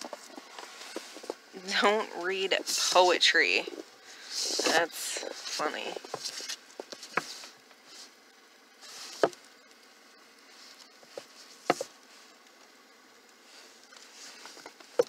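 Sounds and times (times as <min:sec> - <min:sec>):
light rustling of books: 0:00.0 - 0:08.2, 0:08.8 - 0:09.5, 0:10.4 - 0:12.7, 0:13.3 - 0:15.0
books knocking on wooden shelf: 0:11.2 - 0:11.9.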